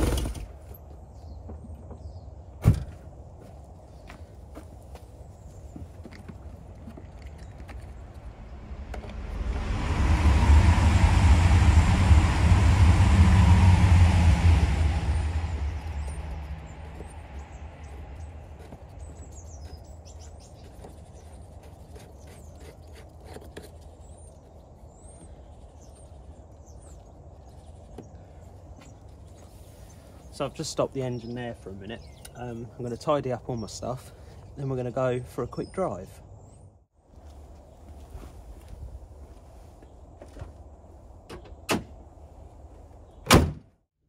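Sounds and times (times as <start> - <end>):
birds chirping: 0.0 - 9.5, 14.7 - 36.8
steady low rumble: 6.4 - 21.6
vehicle passing: 7.6 - 20.0.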